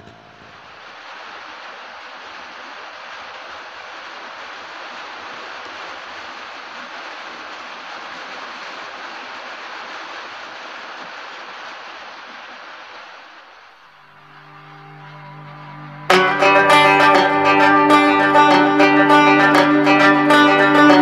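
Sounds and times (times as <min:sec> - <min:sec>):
steady rain hiss: 0:00.0 - 0:21.0
plucked guitar music: 0:14.2 - 0:21.0.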